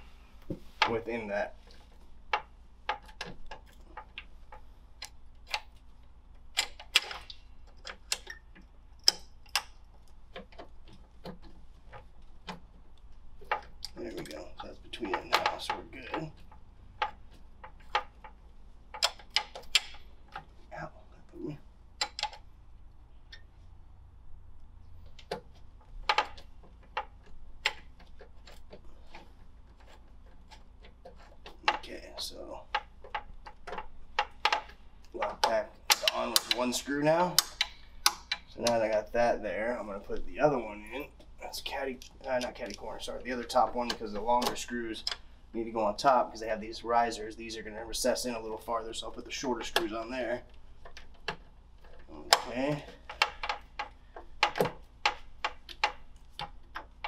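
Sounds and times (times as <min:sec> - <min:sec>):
faint low hum: 0:00.0 - 0:57.0
small metallic clicks and taps: 0:01.7 - 0:20.8, 0:21.4 - 0:23.5, 0:24.8 - 0:39.1, 0:40.9 - 0:45.3, 0:49.3 - 0:57.0
metallic clicks of tools: 0:32.7 - 0:39.0.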